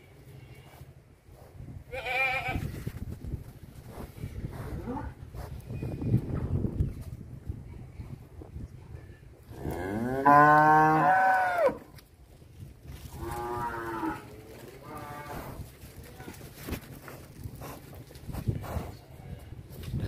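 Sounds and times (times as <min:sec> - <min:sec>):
cattle mooing: 0:09.7 - 0:11.8.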